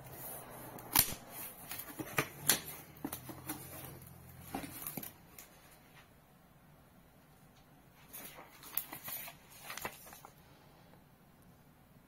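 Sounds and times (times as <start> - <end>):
cardboard and paper rustling: 0.1 - 6.1, 8.0 - 10.4.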